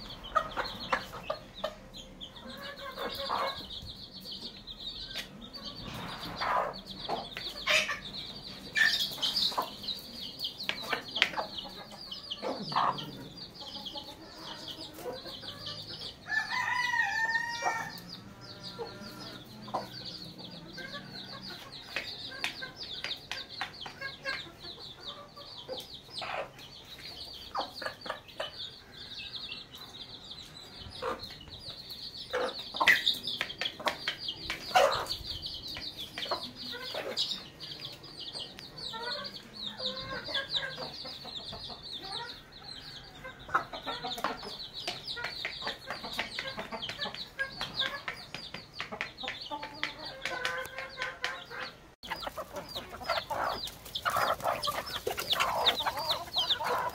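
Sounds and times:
chicks peeping: 0.0s - 56.9s
hen clucking: 0.0s - 56.9s
rooster crowing: 16.2s - 18.0s.

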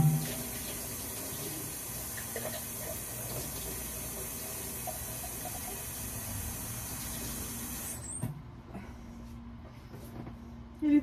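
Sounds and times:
faucet running water into sink: 0.0s - 8.0s.

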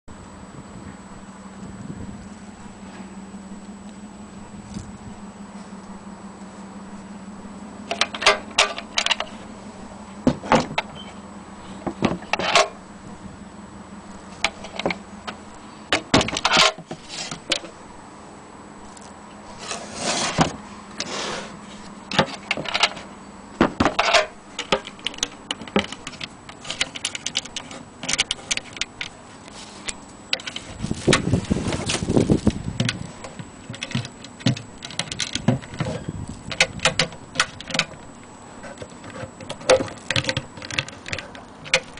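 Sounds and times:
wooden case knocks and rattles: 10.3s - 10.9s, 15.9s - 17.0s, 23.6s - 28.8s, 30.4s - 38.0s, 38.7s - 41.9s.

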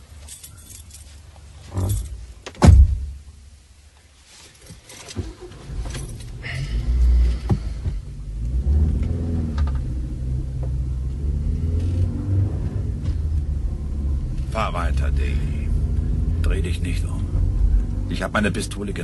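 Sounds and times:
car door slamming: 2.5s - 3.2s
car engine starting and revving: 5.2s - 19.0s.

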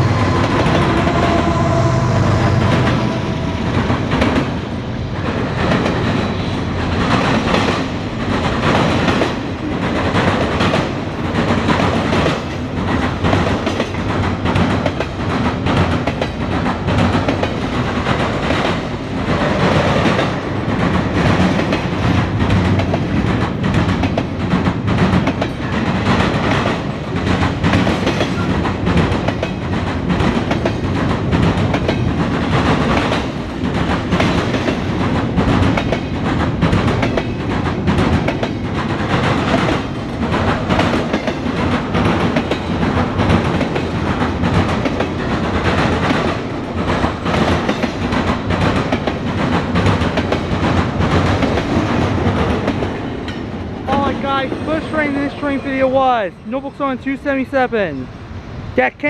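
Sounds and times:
diesel locomotive engines running: 0.0s - 11.3s, 14.2s - 59.0s
train cars rumbling past: 0.0s - 59.0s
wheels clacking over rail joints: 2.7s - 55.8s.

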